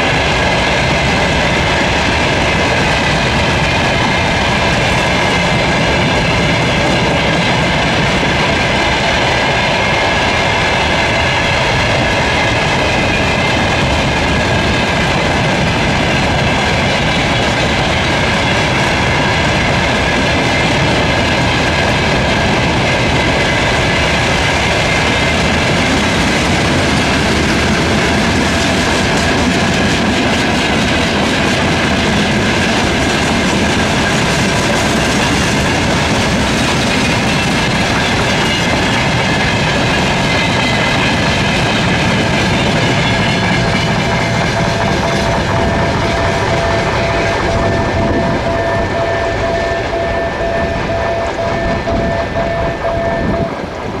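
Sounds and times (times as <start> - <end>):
freight wagons rumbling over rails: 0.0 - 54.0
crossing signal pulsing tone: 42.6 - 53.9.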